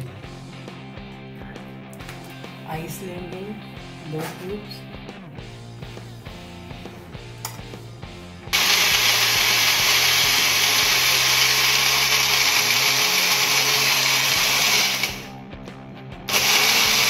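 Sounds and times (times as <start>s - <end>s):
blender blending ice: 8.6s - 15.3s, 16.3s - 17.0s.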